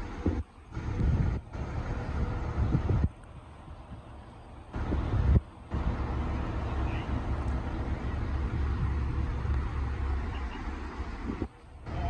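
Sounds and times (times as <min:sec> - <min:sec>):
machinery rumble: 0:00.0 - 0:12.0.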